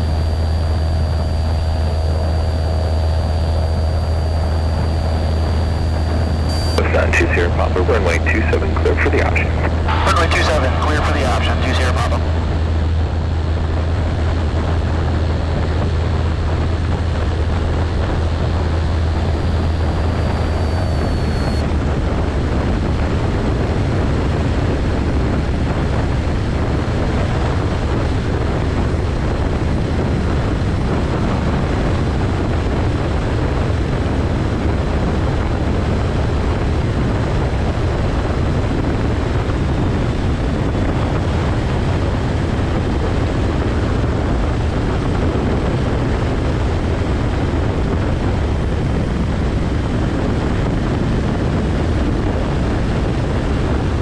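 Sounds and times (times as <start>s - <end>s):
faint high whine: 0.0s - 13.4s, 17.0s - 21.8s
light aircraft engine drone: 0.0s - 54.0s.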